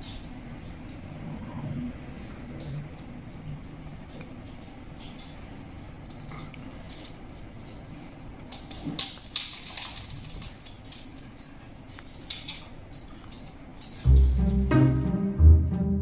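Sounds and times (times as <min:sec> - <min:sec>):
puppy paws tapping on wooden floor: 0:02.5 - 0:14.7
music with plucked low strings: 0:14.1 - 0:16.0.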